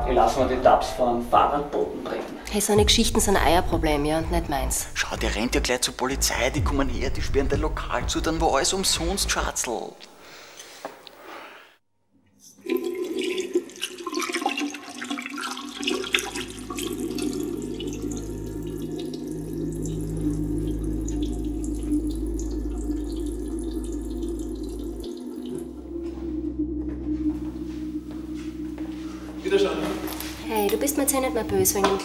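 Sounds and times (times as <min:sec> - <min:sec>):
tap water running into sink: 0:12.6 - 0:20.2
low steady hum: 0:15.8 - 0:32.0.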